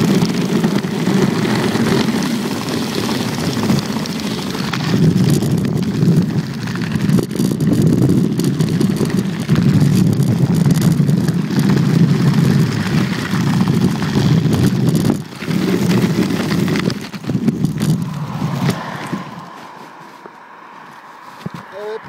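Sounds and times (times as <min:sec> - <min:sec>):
skate wheels rumbling on asphalt: 0:00.0 - 0:22.0
rushing air: 0:15.2 - 0:22.0.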